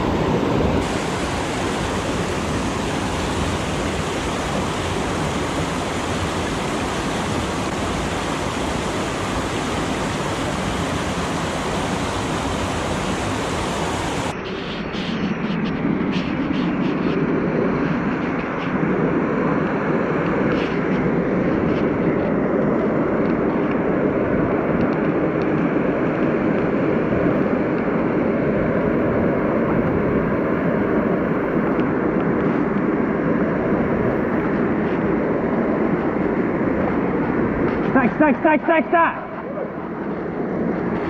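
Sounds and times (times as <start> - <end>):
stream water rushing: 0.0 - 15.2, 19.4 - 41.0.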